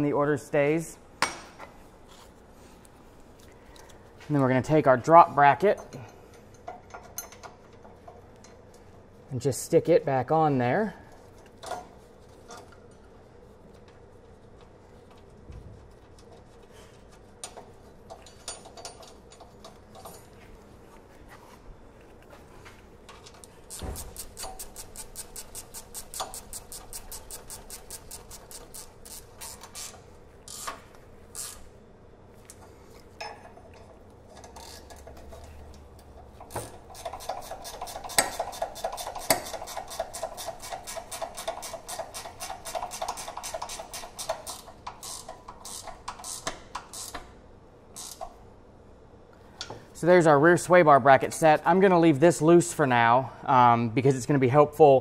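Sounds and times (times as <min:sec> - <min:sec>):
hand ratchet clicking: 0:23.7 - 0:31.7, 0:34.4 - 0:47.3, 0:48.0 - 0:48.4.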